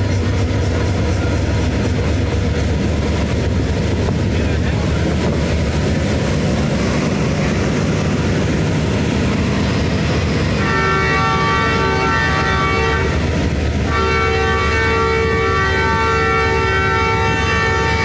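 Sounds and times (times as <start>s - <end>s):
train horn blast: 10.5s - 18.0s.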